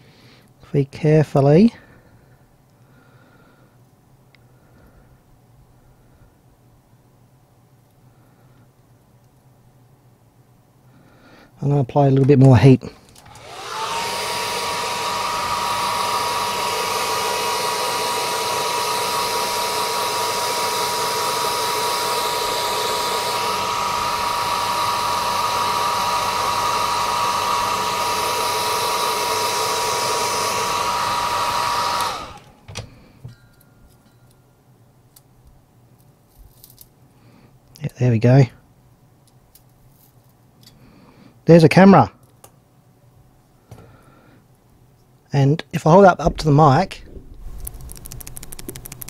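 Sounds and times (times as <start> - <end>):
hot-air blower running: 13.0 - 33.2, 46.2 - 49.0.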